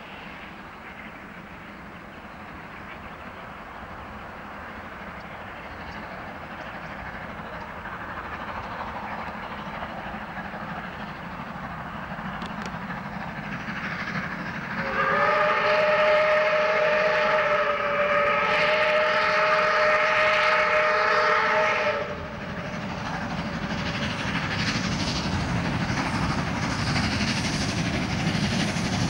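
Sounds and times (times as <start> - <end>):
steam locomotive working: 0.0 - 29.0
steam whistle chord: 14.8 - 22.2.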